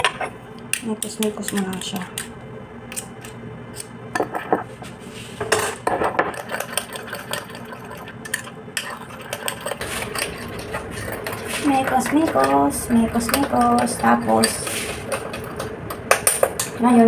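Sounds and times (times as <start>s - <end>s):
spoon scraping glass bowl: 5.6s - 15.7s.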